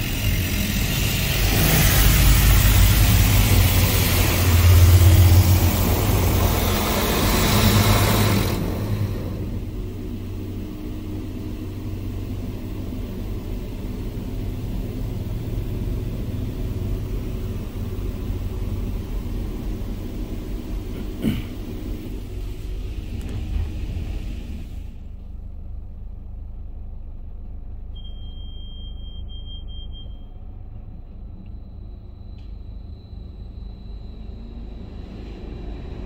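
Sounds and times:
high-pressure water spraying on car: 0.0 - 10.6
low machinery rumble: 0.0 - 36.0.

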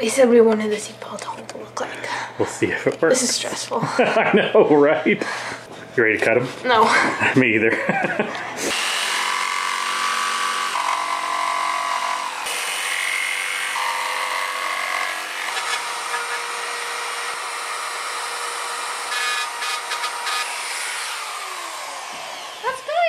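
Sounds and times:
electric jigsaw cutting: 8.6 - 23.0.

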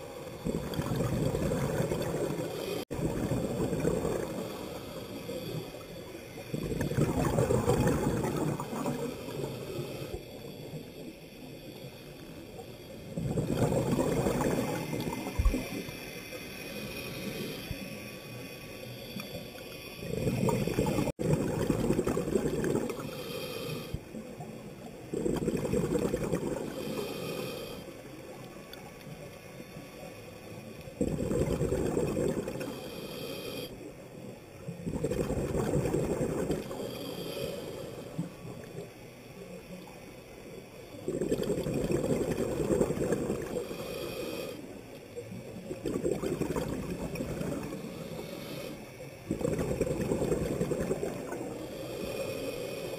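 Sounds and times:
bubbly exhaled air underwater: 0.4 - 5.6, 6.5 - 10.1, 13.1 - 15.9, 20.0 - 23.2, 25.1 - 27.2, 31.0 - 32.8, 34.7 - 36.8, 40.9 - 43.7, 45.6 - 48.0, 49.3 - 52.0
regulator inhalation hiss: 3.6 - 6.9, 8.5 - 13.2, 14.5 - 21.1, 22.8 - 24.8, 26.5 - 28.6, 32.5 - 34.3, 36.4 - 40.9, 43.2 - 45.2, 47.5 - 49.2, 50.2 - 52.9.

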